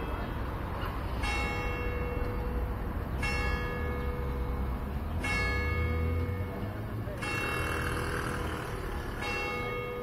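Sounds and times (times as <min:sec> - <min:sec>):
church bell ringing: 0:01.2 - 0:10.0.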